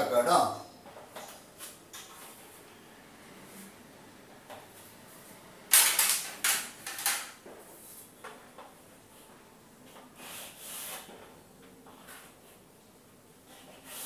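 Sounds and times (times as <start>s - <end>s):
rubbing strokes on a chalkboard: 9.0s - 12.8s, 13.4s - 14.0s.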